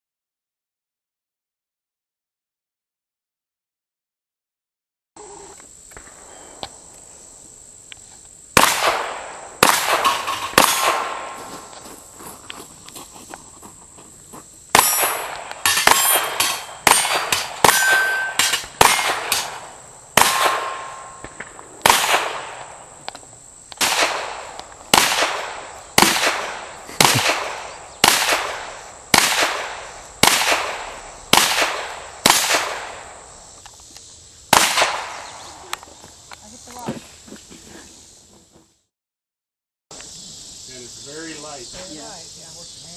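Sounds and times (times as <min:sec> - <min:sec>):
gunshots: 0:08.6 - 0:11.6, 0:14.7 - 0:22.8, 0:23.8 - 0:33.2, 0:34.5 - 0:35.3
metallic ring of steel target: 0:14.8 - 0:19.6, 0:20.3 - 0:21.3.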